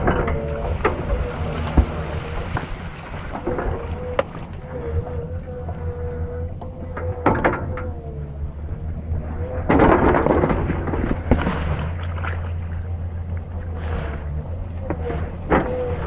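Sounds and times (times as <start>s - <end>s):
excavator diesel engine running: 0.0s - 16.0s.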